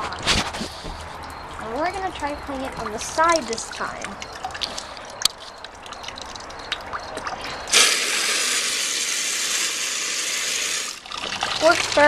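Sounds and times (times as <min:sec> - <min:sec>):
small drips and clicks: 0:00.0 - 0:07.9, 0:10.9 - 0:12.0
toilet flushing water rush: 0:07.1 - 0:12.0.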